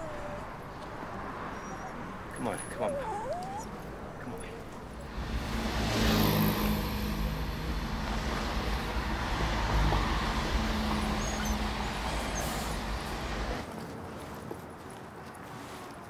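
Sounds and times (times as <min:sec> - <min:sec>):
road traffic rumble: 0:00.0 - 0:14.2
vehicle engine running: 0:05.0 - 0:13.6.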